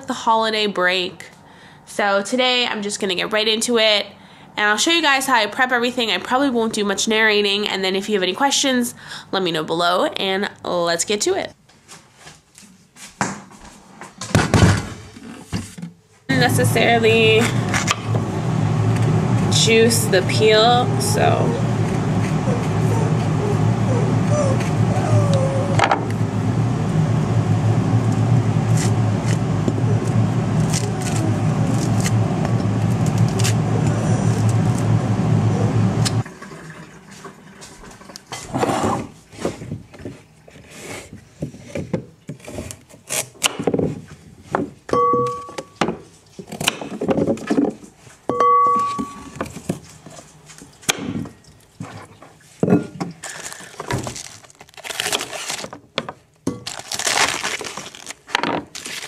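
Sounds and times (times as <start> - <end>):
loud steady drone: 16.3 - 25.1, 25.8 - 36.2
short tones: 48.3 - 49.4.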